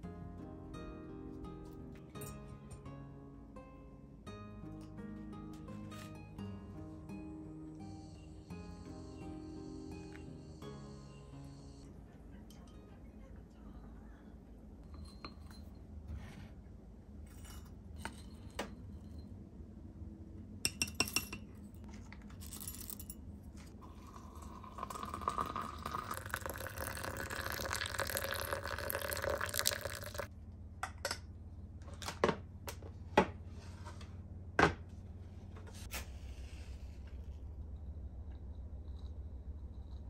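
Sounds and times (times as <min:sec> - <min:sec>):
glass clinking: 0:14.8 - 0:15.9, 0:20.7 - 0:21.5, 0:23.8 - 0:30.3
water pouring into teapot: 0:23.8 - 0:30.3.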